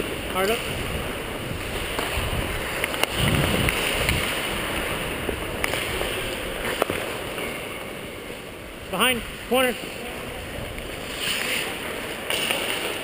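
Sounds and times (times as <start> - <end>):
wind on microphone: 0.0 - 6.6
skate blades scraping on ice: 0.0 - 7.9, 10.6 - 13.0
sharp clicks on ice: 2.8 - 4.5, 11.1 - 13.0.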